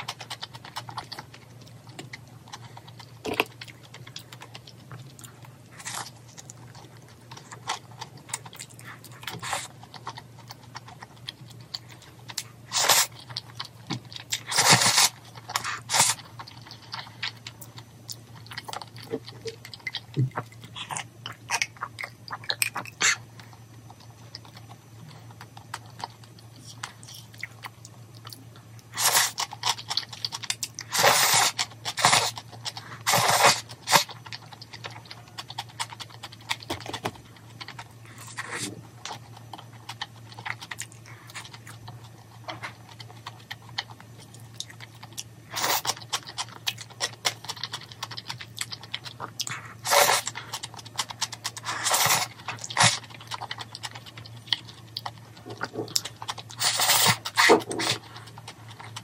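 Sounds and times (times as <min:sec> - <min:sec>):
chewing: 0:00.0 - 0:59.0
low steady hum: 0:00.0 - 0:59.0
noodles slurped: 0:49.2 - 0:53.0, 0:56.6 - 0:58.2.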